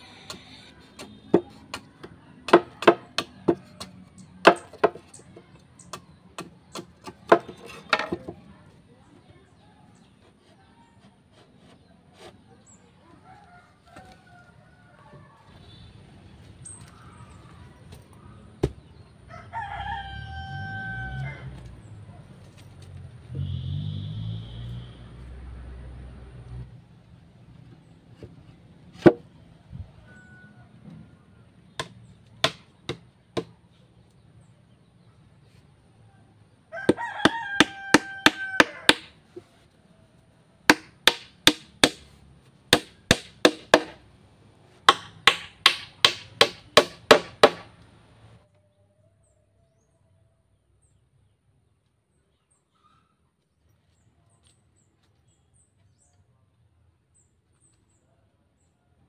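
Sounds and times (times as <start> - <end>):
machete chopping wood: 1.0 - 5.1, 29.0 - 29.2, 31.8 - 33.5, 36.9 - 39.2, 40.7 - 44.0, 44.9 - 47.7
rooster crowing: 13.2 - 15.6, 19.3 - 21.7, 30.0 - 30.9, 36.7 - 39.0
faint bird chirps: 52.2 - 53.3.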